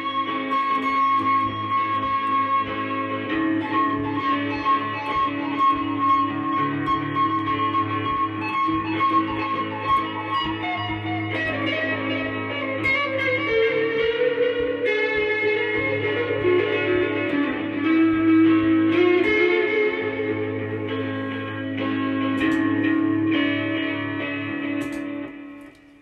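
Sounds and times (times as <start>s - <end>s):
electric guitar lead lines: 0.0s - 26.0s.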